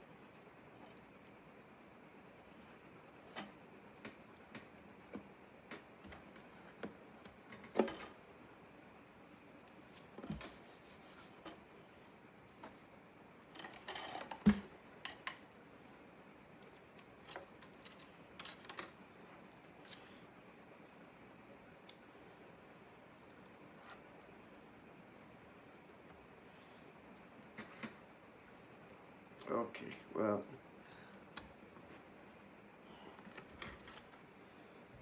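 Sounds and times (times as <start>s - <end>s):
small clicks taps and rustles: 2.4s - 8.2s, 13.5s - 15.5s, 16.5s - 20.1s.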